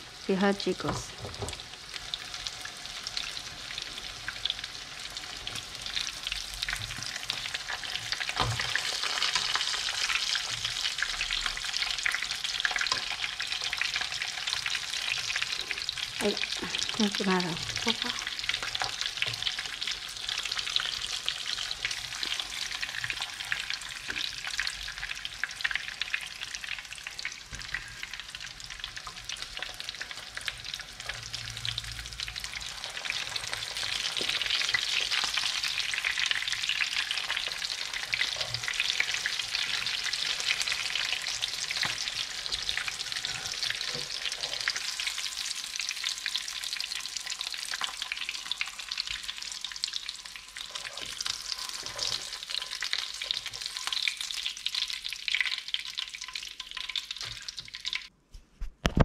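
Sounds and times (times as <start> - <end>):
frying oil sizzling and crackling: 0.0 - 58.1.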